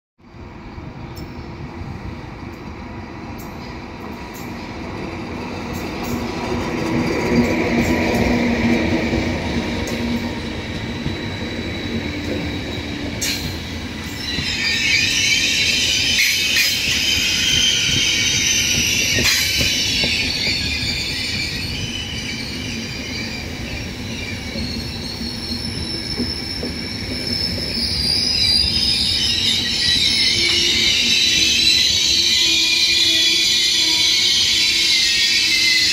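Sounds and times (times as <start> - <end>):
train wheels rumbling on rail: 0.3 - 35.9
high-pitched wheel squeal: 9.9 - 35.9.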